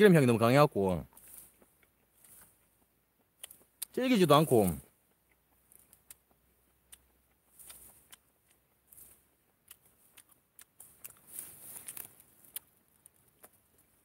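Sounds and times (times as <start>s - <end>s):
mushroom being torn by hand: 5.4s - 14.0s.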